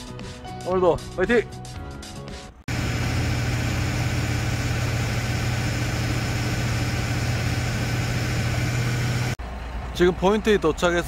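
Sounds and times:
boat engine droning: 2.7 - 9.9.

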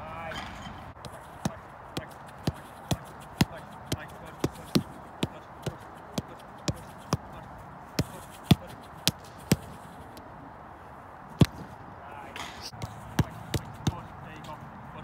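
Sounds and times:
football being kicked: 1.0 - 7.4, 8.0 - 10.0, 11.4 - 11.8, 12.7 - 14.1.

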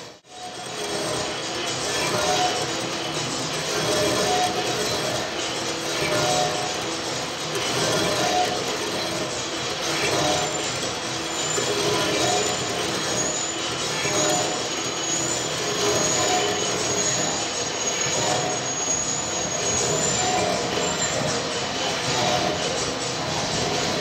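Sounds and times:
high metal squeal: 0.0 - 24.0
lathe cutting metal: 0.0 - 24.0.

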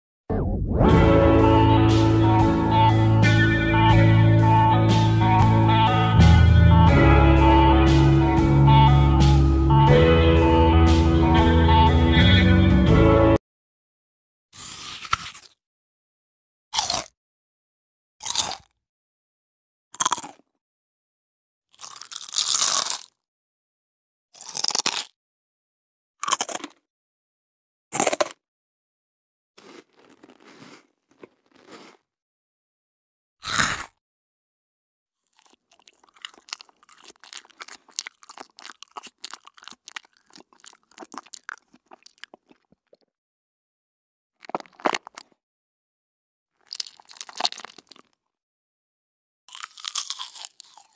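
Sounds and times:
crunchy snack bites: 14.6 - 15.6, 16.7 - 17.2, 18.2 - 18.8, 20.0 - 20.5, 21.7 - 23.3, 24.4 - 25.2, 26.2 - 26.9, 27.9 - 28.4, 29.6 - 32.1, 33.4 - 34.0, 35.2 - 43.1, 44.4 - 45.4, 46.6 - 48.3, 49.5 - 50.9.

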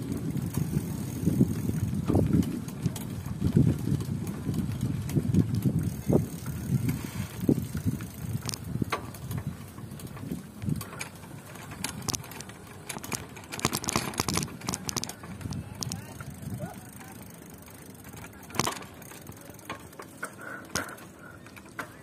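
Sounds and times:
wind rumble on microphone: 0.0 - 16.9
bike clicks and rattles: 0.0 - 22.0.

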